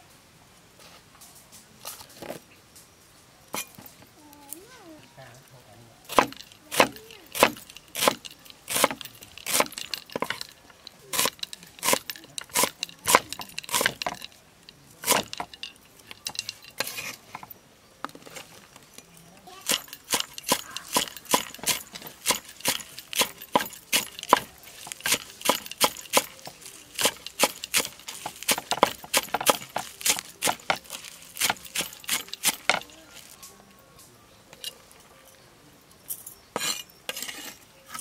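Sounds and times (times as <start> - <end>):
cleaver chopping on wooden block: 6.1 - 10.5, 11.1 - 14.3, 15.0 - 15.6, 19.6 - 32.9.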